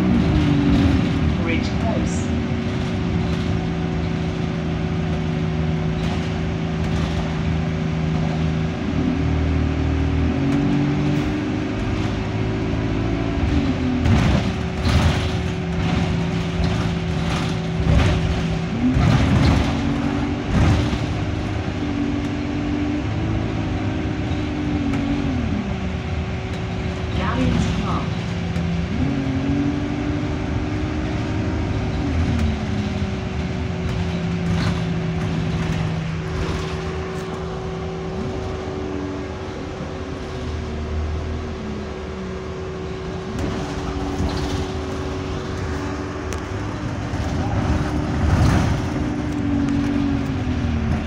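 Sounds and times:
bus diesel engine: 0.0 - 51.0
constant whine: 0.0 - 51.0
body rattles: 2.0 - 8.7, 13.6 - 21.6, 31.8 - 38.6.

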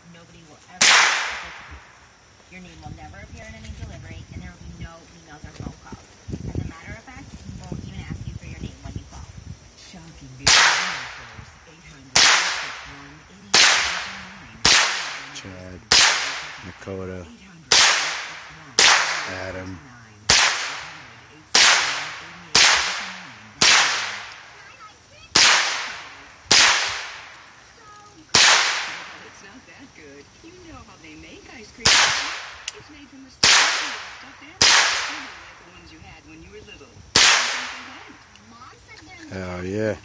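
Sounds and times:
rifle shots: 0.8 - 1.9, 10.4 - 11.4, 12.1 - 17.0, 17.7 - 24.6, 25.3 - 27.6, 28.3 - 29.4, 31.8 - 32.8, 33.4 - 35.6, 37.1 - 38.2.

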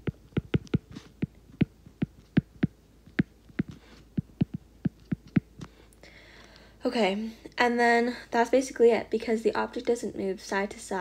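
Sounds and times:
stylus tapping on glass screen: 0.0 - 5.7.

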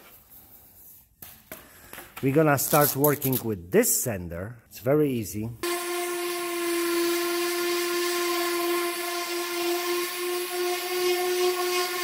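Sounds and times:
orbital sander motor whine: 5.6 - 12.0.

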